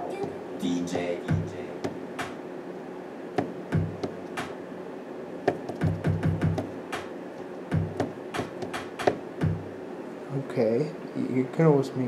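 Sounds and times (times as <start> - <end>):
drum sample hits: 1.2 - 2.4, 3.4 - 4.6, 5.5 - 7.1, 7.7 - 9.8.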